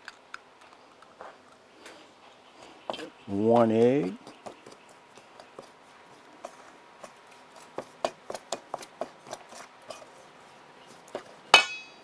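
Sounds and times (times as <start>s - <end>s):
ringing clang on metal bowl: 11.6s - 12.0s.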